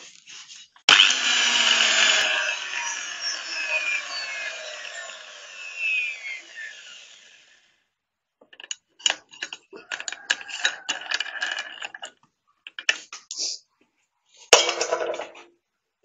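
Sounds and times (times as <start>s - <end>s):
angle grinder winding down: 0.9s - 7.7s
hard objects clicking and rattling: 8.4s - 13.0s.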